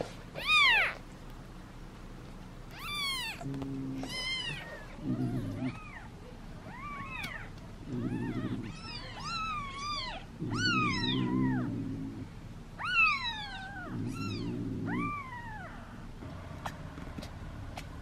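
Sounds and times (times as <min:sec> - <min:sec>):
low muffled rumble: 0:00.0 - 0:18.0
kitten mewing: 0:00.4 - 0:01.1, 0:02.7 - 0:11.7, 0:12.8 - 0:15.8.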